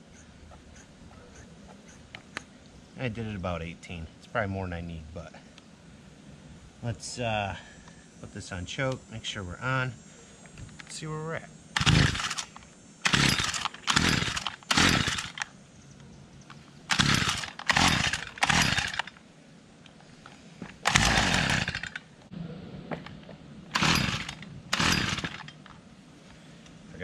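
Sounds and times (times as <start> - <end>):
string trimmer recoil starter cranking: 11.8 - 15.5, 16.9 - 19.2, 20.8 - 22.1, 23.7 - 25.7.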